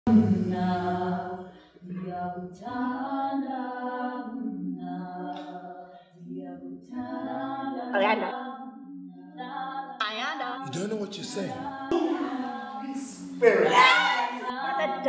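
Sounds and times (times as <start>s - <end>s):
person singing unaccompanied: 10.3s - 15.0s.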